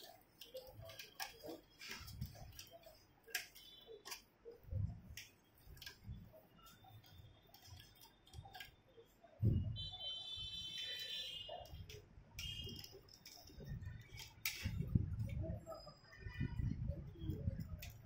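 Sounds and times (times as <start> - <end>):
plastic and metal parts clicking: 0.0 - 10.2, 11.6 - 15.4, 17.4 - 18.0.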